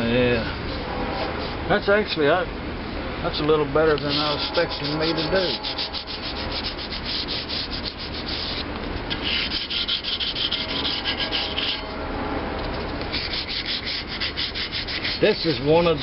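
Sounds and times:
sandpaper rubbing on metal: 0:04.0 - 0:12.0, 0:13.1 - 0:16.0.

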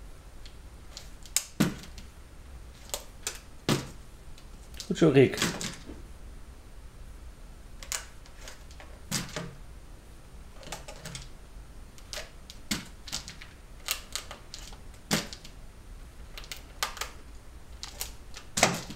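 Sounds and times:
rabbit clicking and tapping bark: 0:12.0 - 0:15.6, 0:16.3 - 0:17.2.

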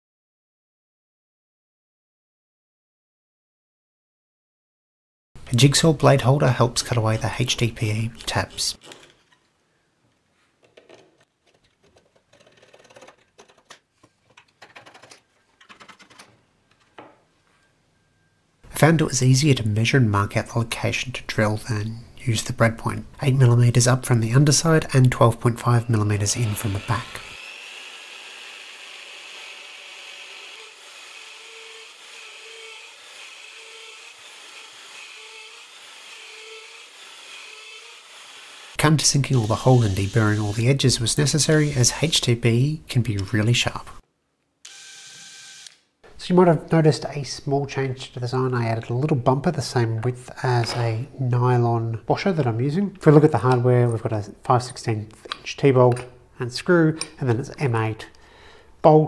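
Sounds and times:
jigsaw blade rasping through plastic: 0:11.0 - 0:16.4
drill bit cutting plastic: 0:26.3 - 0:40.8, 0:41.4 - 0:41.9, 0:44.6 - 0:45.8.

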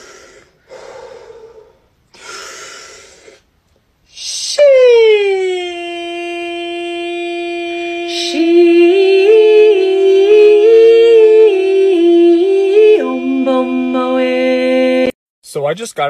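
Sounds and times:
person singing a melody: 0:04.1 - 0:15.2
voice holding long sung note: 0:04.1 - 0:15.2.

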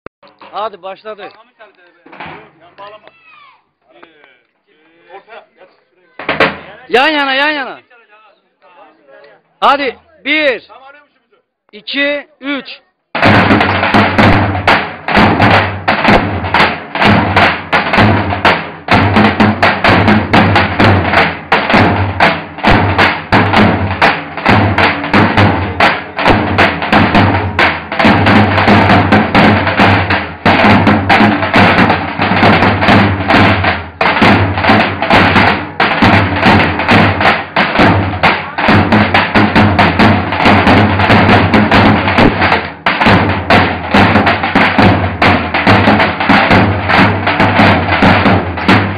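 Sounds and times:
drums beaten in driving rhythm: 0:06.1 - 0:07.7, 0:13.1 - 0:48.9.

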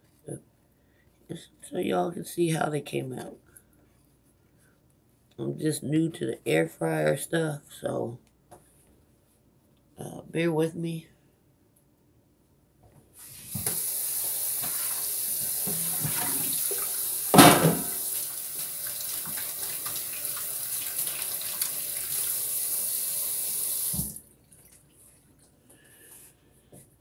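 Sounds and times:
tap running into sink: 0:13.5 - 0:21.8, 0:23.8 - 0:24.2.

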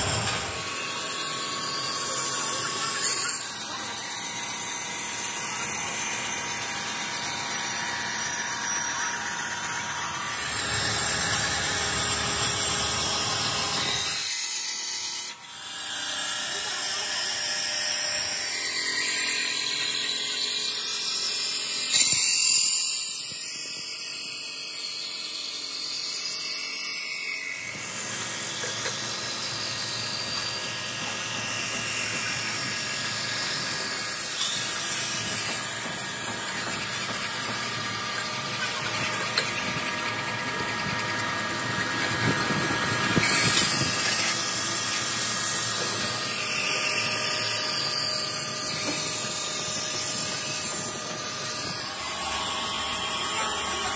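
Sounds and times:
grinding machine high-pitched hiss: 0:00.0 - 0:53.9.

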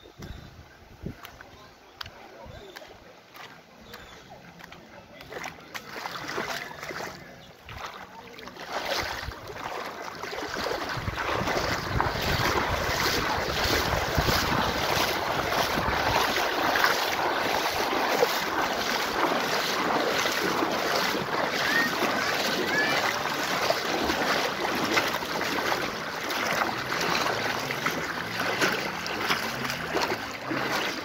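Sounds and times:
river water over pebbles: 0:00.0 - 0:31.0
wind buffeting microphone: 0:08.8 - 0:25.8.

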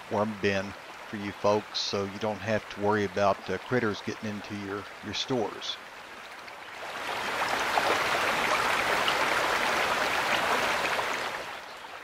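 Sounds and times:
fountain splashing: 0:00.0 - 0:05.9.

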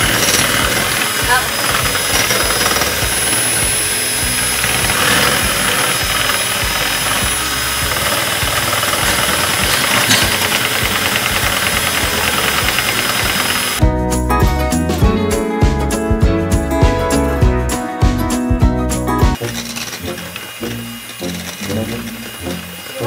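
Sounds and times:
electric mixer running: 0:00.0 - 0:13.8, 0:19.4 - 0:23.0.

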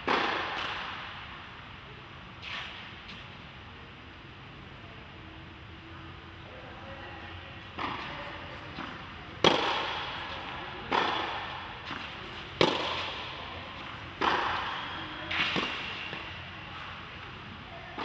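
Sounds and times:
tennis balls bouncing: 0:00.0 - 0:01.2, 0:07.6 - 0:18.0
rackets striking tennis balls: 0:00.0 - 0:01.4, 0:07.6 - 0:18.0.

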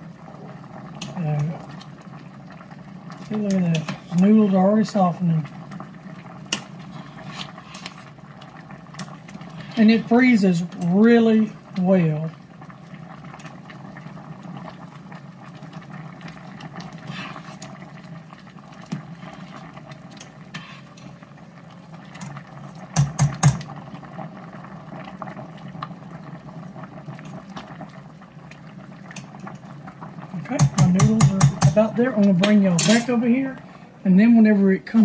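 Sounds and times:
soup bubbling at a boil: 0:00.0 - 0:35.0
ladle knocking on steel pot: 0:30.6 - 0:31.8.

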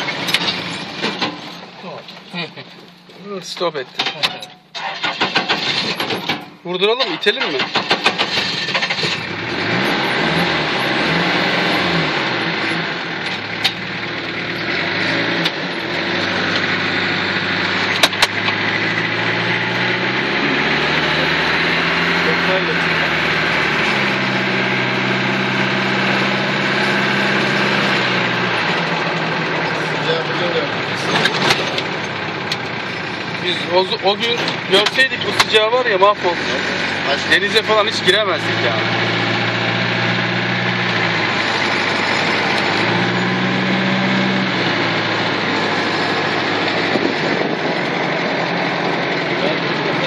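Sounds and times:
vehicle engine running: 0:07.5 - 0:50.0
wind and road noise: 0:34.0 - 0:50.0.

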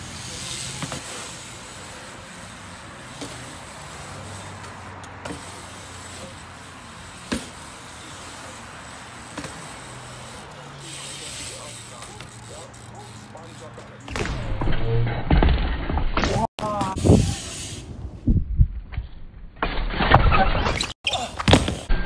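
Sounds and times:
tyres hissing on concrete: 0:00.0 - 0:14.1, 0:16.6 - 0:18.2.

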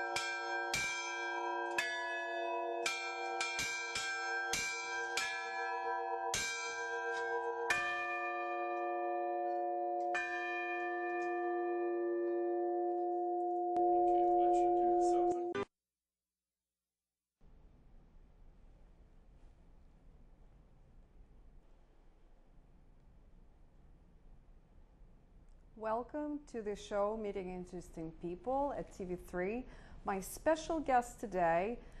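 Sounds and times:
church bells ringing: 0:00.0 - 0:15.5.

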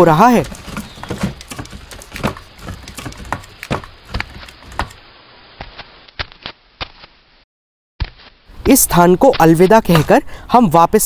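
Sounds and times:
footsteps in boots: 0:00.4 - 0:05.0.

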